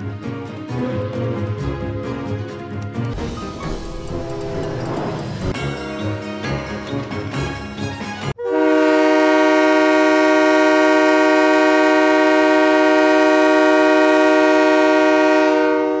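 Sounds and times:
locomotive air horn blast: 0:08.4 - 0:16.0.

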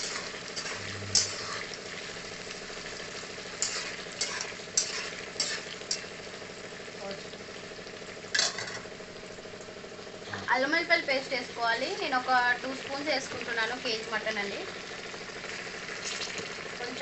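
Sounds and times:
onions sizzling in hot oil: 0:00.0 - 0:17.0
fork clinking against pan: 0:03.6 - 0:06.1, 0:08.4 - 0:08.8.

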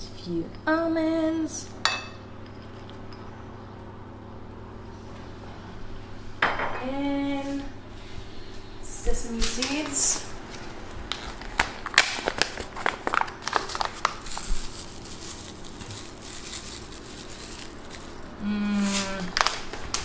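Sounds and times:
food packet crinkling: 0:10.5 - 0:20.0
person humming: 0:18.4 - 0:19.4.

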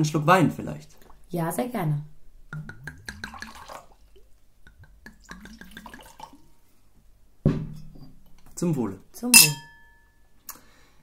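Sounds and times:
wine pouring into a glass: 0:03.2 - 0:04.3, 0:05.1 - 0:06.5.

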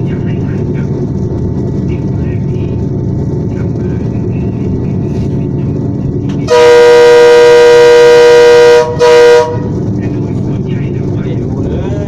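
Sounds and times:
train rumbling along track: 0:00.0 - 0:12.0
locomotive air horn: 0:06.4 - 0:09.8.

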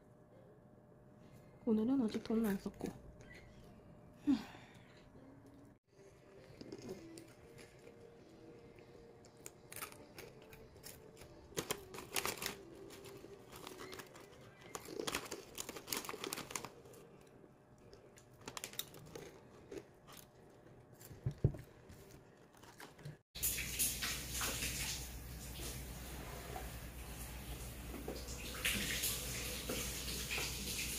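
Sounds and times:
paper rustling: 0:11.5 - 0:16.9.

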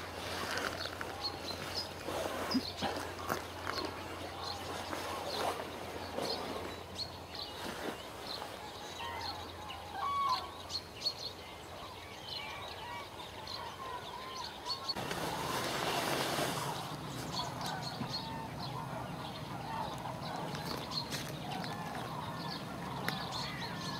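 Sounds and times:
cranes trumpeting calls: 0:09.0 - 0:10.6, 0:16.7 - 0:23.9.

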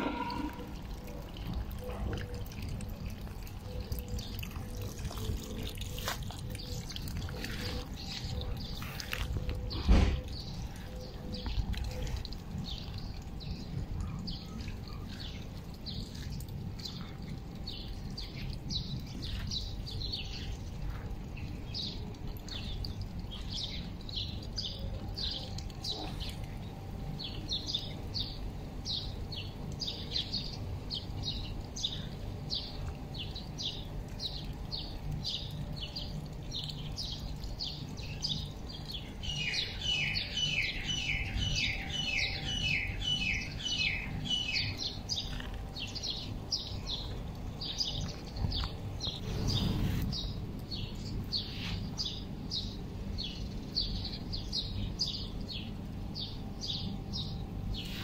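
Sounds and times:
small birds chirping: 0:00.0 - 0:58.0
steady low rumble: 0:42.9 - 0:57.8.

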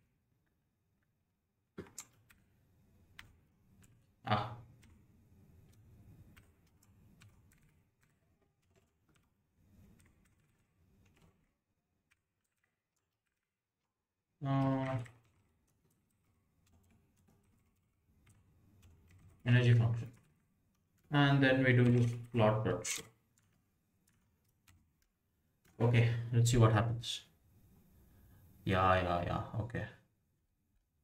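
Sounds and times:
keyboard typing and clicks: 0:01.8 - 0:13.6, 0:14.4 - 0:26.0.

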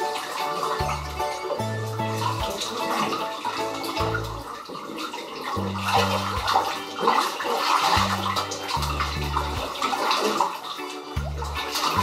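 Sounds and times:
water sloshing in bathtub: 0:00.0 - 0:12.0
music with low bass notes: 0:00.8 - 0:04.5, 0:05.6 - 0:06.8, 0:08.0 - 0:09.8, 0:11.2 - 0:12.0.

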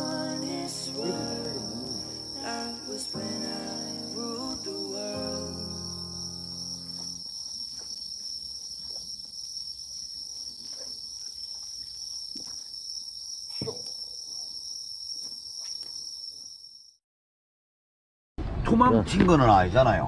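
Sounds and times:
crickets trilling: 0:00.0 - 0:17.0.

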